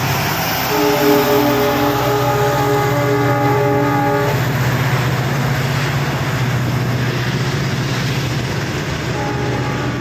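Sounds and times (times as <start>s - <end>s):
freight train wagons rumbling: 0.0s - 10.0s
train horn: 0.7s - 4.6s, 9.1s - 10.0s.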